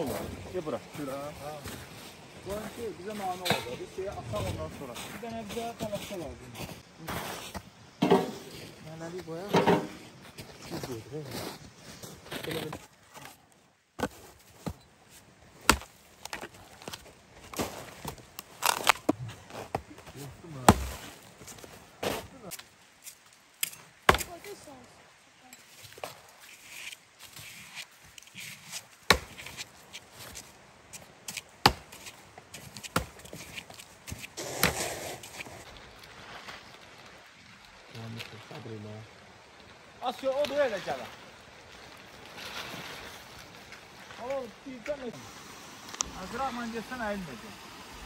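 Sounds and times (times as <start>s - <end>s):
blade chopping wood: 15.6s - 16.4s, 20.6s - 21.0s, 23.6s - 24.3s, 29.1s - 29.6s, 31.6s - 32.1s
sharp chopping strikes: 20.6s - 21.0s, 29.1s - 29.6s.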